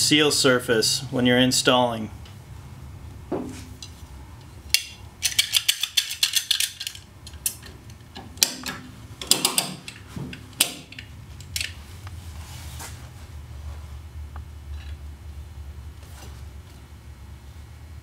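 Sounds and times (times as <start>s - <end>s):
hand ratchet clicking: 4.7s - 7.7s.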